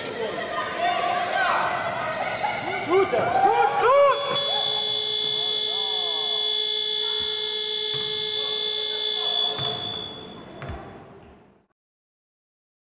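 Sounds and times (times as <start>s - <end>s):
scoreboard buzzer: 4.2s - 10.6s.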